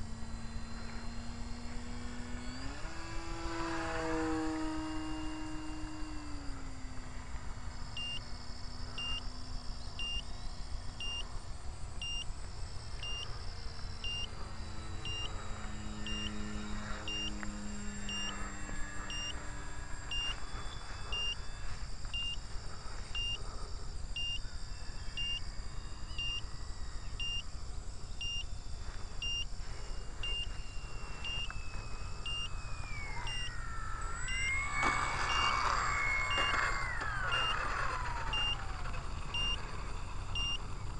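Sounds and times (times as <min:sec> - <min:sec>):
model plane motor whine: 0:00.0 - 0:40.9
electronic beeping: 0:07.9 - 0:08.4, 0:09.0 - 0:11.4, 0:12.0 - 0:23.4, 0:24.2 - 0:28.6, 0:29.2 - 0:40.9.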